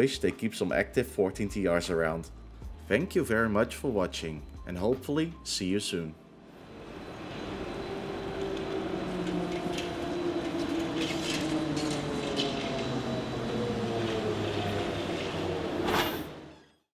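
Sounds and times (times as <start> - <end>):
trolleybus electric whine: 6.2 - 16.9
traffic noise: 6.6 - 16.5.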